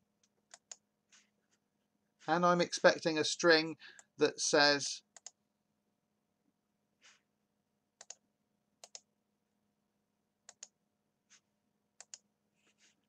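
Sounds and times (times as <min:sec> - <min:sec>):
computer mouse clicks: 0:00.2 - 0:00.8, 0:05.1 - 0:05.4, 0:08.0 - 0:08.2, 0:08.8 - 0:09.1, 0:10.4 - 0:11.4, 0:12.0 - 0:12.3.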